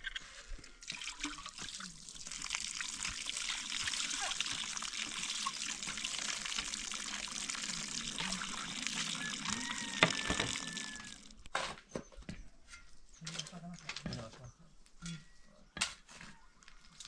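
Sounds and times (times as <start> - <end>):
tap water splashing: 0.9 - 11.5.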